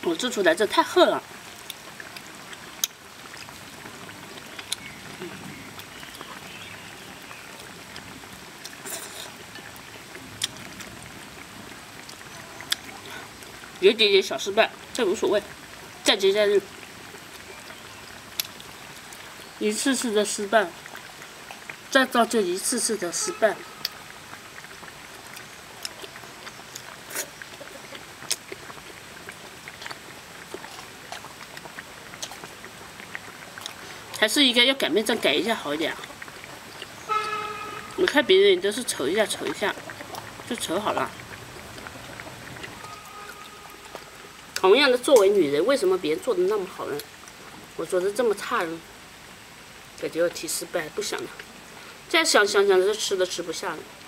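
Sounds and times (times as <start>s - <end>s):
background hiss: 0.0s - 54.0s
chewing: 1.6s - 13.5s, 17.3s - 19.6s, 20.8s - 21.9s, 23.8s - 34.3s, 35.0s - 45.4s.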